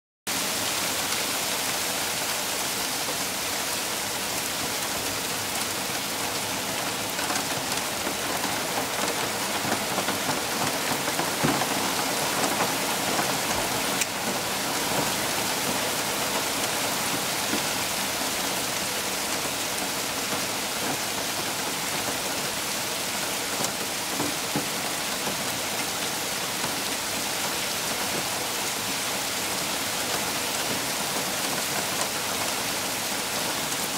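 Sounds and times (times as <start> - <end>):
hailstones falling on soil and leaves: 7.2 - 15.3.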